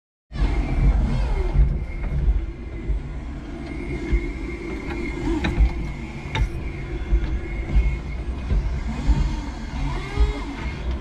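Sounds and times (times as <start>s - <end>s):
forklift rumble and whine: 0.3s - 11.0s.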